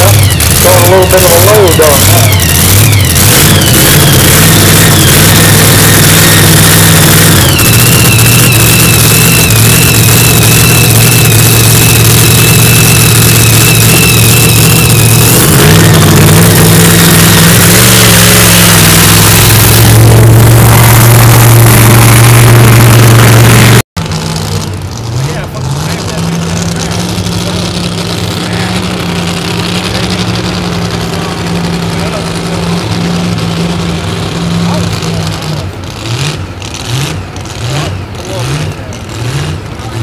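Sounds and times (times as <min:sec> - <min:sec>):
steady high whine: 0:00.0 - 0:24.8
pickup engine running loud: 0:00.0 - 0:40.0.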